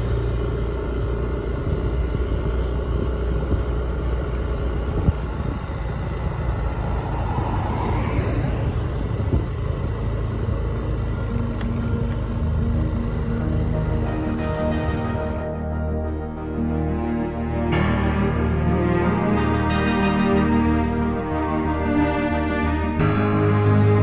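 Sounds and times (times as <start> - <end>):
road traffic rumble: 0.0 - 24.0
car passing: 5.0 - 15.6.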